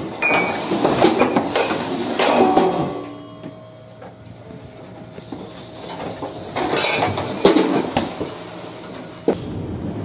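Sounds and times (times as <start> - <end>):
steady rumble: 8.6 - 10.0.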